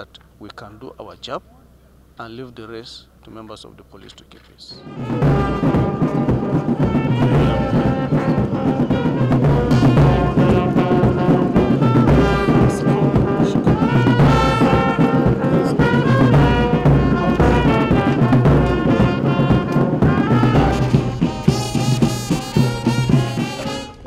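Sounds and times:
low drum beat: 0:04.7 - 0:24.0
brass band music: 0:04.8 - 0:24.0.

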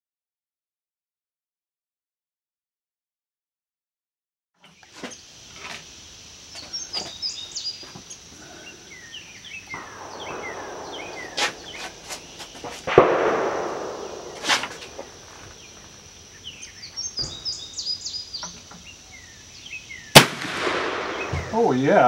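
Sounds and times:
birds chirping: 0:04.6 - 0:22.0
high insect buzz: 0:04.6 - 0:22.0
loud sharp bang: 0:09.8 - 0:15.6, 0:20.2 - 0:21.8.

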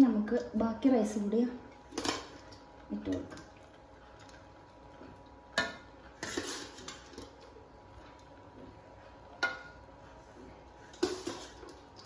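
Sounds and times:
spoon scraping through rice: 0:06.2 - 0:07.2.

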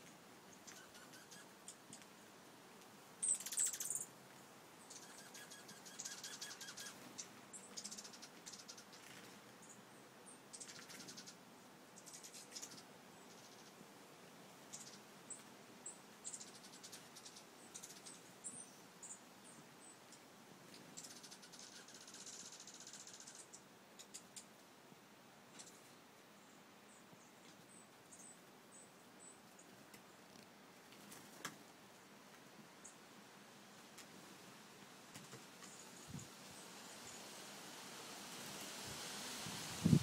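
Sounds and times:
birds twittering trills: 0:00.6 - 0:02.0, 0:03.2 - 0:04.1, 0:04.8 - 0:11.4, 0:12.0 - 0:13.8, 0:14.7 - 0:24.5, 0:25.5 - 0:29.7.

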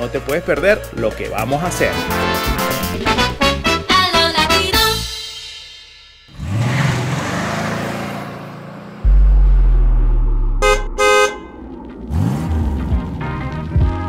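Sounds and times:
music: 0:00.0 - 0:06.3, 0:12.1 - 0:14.0
deep vehicle-like rumble: 0:09.0 - 0:14.0
car horn toots: 0:10.6 - 0:11.6.

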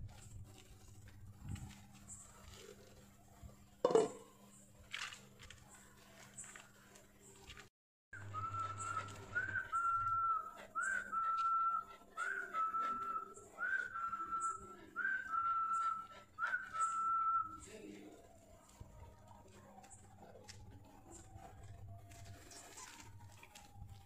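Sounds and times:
person whistling: 0:08.2 - 0:17.6.

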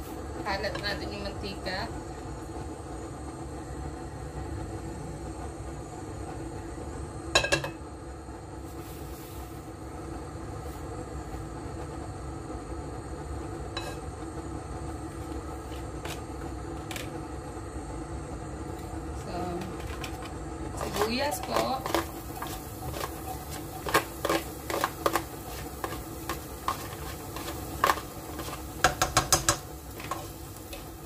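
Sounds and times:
gas stove burner hum: 0:00.0 - 0:31.0
metal pot clinking on grate: 0:07.4 - 0:07.8.

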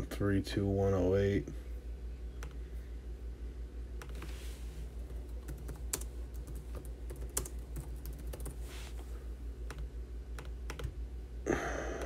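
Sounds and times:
steady low hum: 0:00.0 - 0:12.0
keyboard typing clicks: 0:09.7 - 0:11.0.

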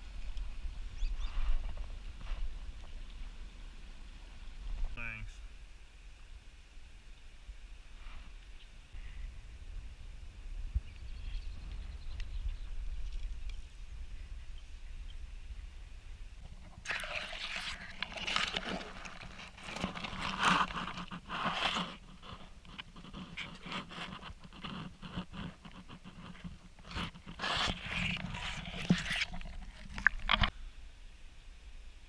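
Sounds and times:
camera handling scraping: 0:17.8 - 0:30.5.

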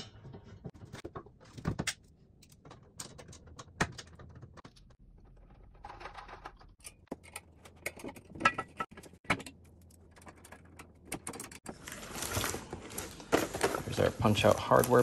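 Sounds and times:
metal parts clicking and knocking: 0:00.1 - 0:11.6.

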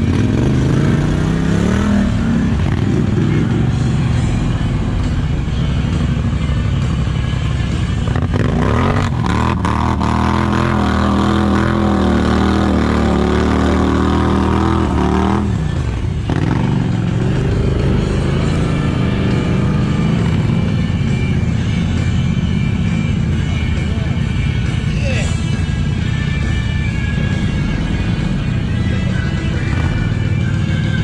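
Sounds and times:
quad bike engine revving: 0:00.0 - 0:23.8.

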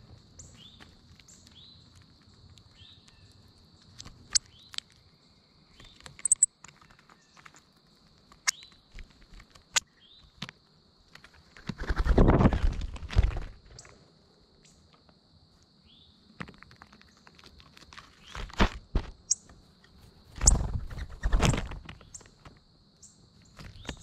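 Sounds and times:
high insect drone: 0:00.0 - 0:24.0
beaks tapping on shells: 0:05.8 - 0:06.8
bird wingbeats: 0:11.1 - 0:13.8, 0:20.2 - 0:22.5.

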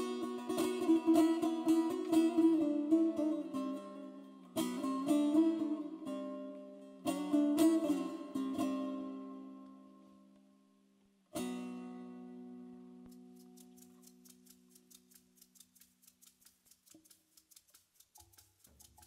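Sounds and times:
plucked lute notes: 0:00.0 - 0:10.6, 0:11.3 - 0:15.2
strummed lute chord: 0:00.0 - 0:10.6, 0:11.4 - 0:13.4.

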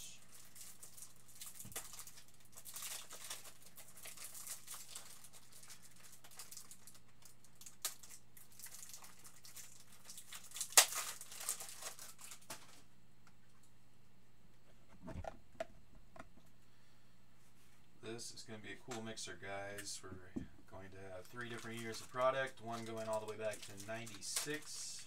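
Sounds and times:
faint steady hum: 0:00.0 - 0:25.0
plastic wrapping crinkling: 0:00.1 - 0:12.9, 0:21.1 - 0:25.0.

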